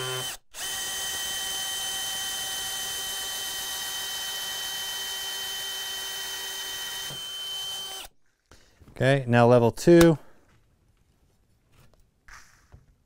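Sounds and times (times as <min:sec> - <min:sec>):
drill boring into wood: 0:00.0 - 0:08.1.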